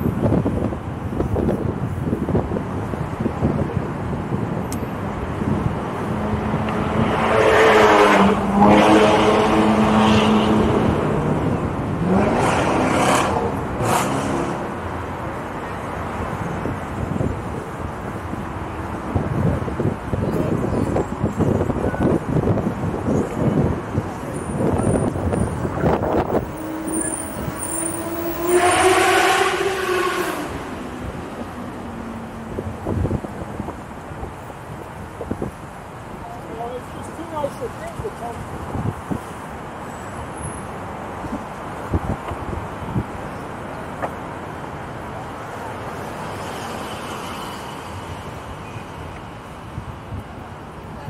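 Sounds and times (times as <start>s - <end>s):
road traffic rumble: 0.0s - 51.0s
vehicle droning tone rising: 24.8s - 33.6s.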